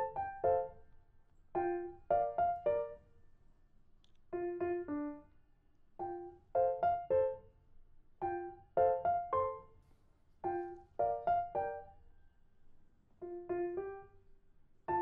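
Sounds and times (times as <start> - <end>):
light piano melody: 0.0 - 3.2, 4.3 - 5.3, 6.0 - 7.5, 8.2 - 12.1, 13.2 - 15.0.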